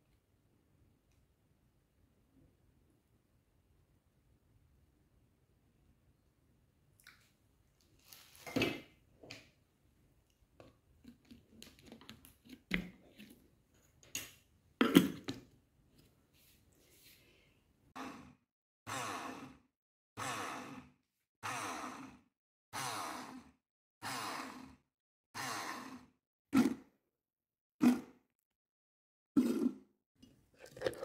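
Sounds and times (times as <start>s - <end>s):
blender crushing ice in pulses: 29.4s - 29.8s.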